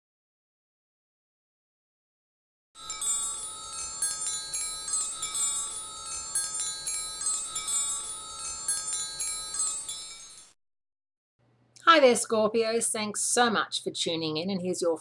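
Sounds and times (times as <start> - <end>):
wind chimes tinkling: 2.8 - 10.6.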